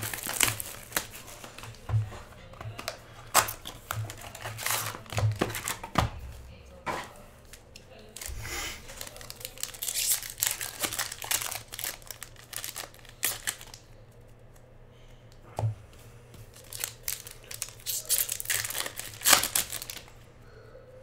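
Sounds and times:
foil wrappers crackling: 0:00.0 - 0:06.2, 0:07.4 - 0:14.3, 0:16.5 - 0:20.1.

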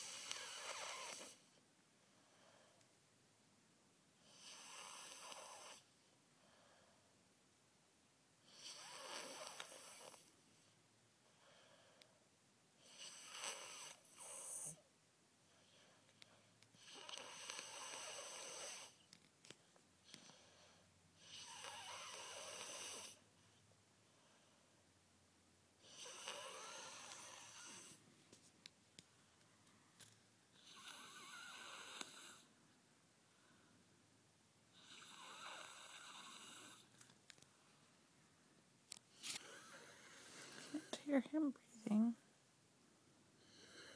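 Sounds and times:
child snoring: 0:00.0 - 0:01.4, 0:04.2 - 0:05.9, 0:08.5 - 0:10.3, 0:12.8 - 0:14.8, 0:16.8 - 0:19.0, 0:20.1 - 0:23.3, 0:25.8 - 0:28.0, 0:30.6 - 0:32.5, 0:34.8 - 0:36.9, 0:43.4 - 0:43.9.

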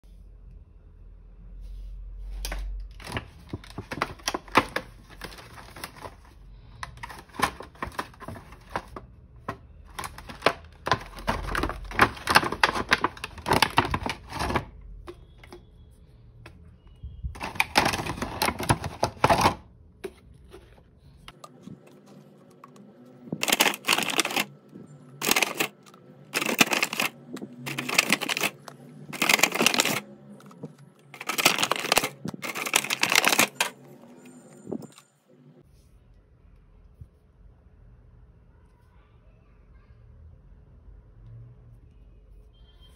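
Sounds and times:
plastic bag crinkling: 0:03.0 - 0:09.0, 0:09.9 - 0:14.8, 0:17.4 - 0:19.6, 0:21.6 - 0:33.9
plastic tubs clattering: 0:06.9 - 0:14.7, 0:17.4 - 0:19.6, 0:23.3 - 0:24.5, 0:25.2 - 0:25.7, 0:26.3 - 0:30.0, 0:31.2 - 0:33.8.

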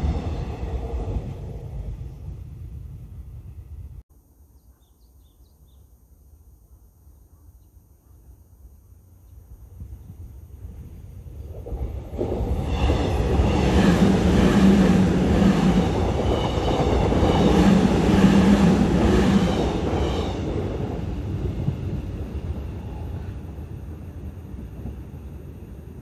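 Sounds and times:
electric train passing: 0:00.0 - 0:04.0, 0:10.4 - 0:26.0.

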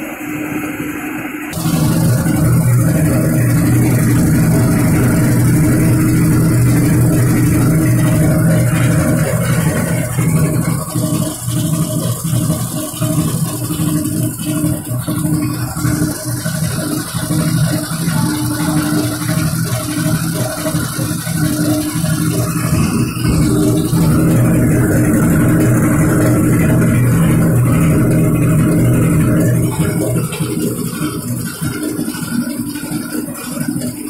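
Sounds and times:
popcorn machine motor hum: 0:00.0 - 0:34.0.

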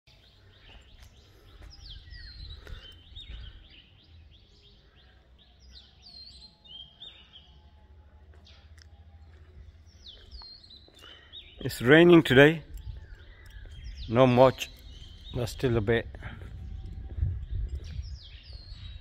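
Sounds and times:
small birds chirping: 0:00.1 - 0:19.0
low rumble: 0:16.0 - 0:19.0.

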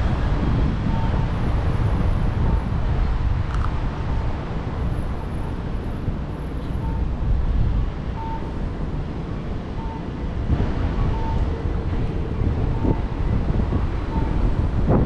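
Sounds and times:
city traffic rumble: 0:00.0 - 0:15.0
faint short beeps: 0:06.6 - 0:07.1, 0:08.2 - 0:08.5.

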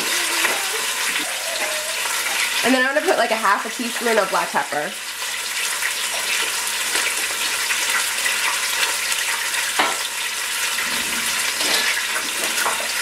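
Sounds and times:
meat sizzling in oil: 0:00.0 - 0:13.0.

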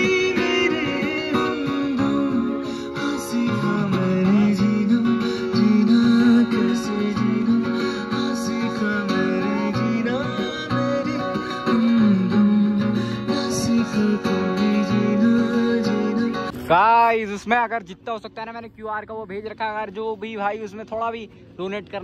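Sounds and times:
man singing: 0:00.0 - 0:16.8
acoustic guitar strumming: 0:00.0 - 0:18.4.

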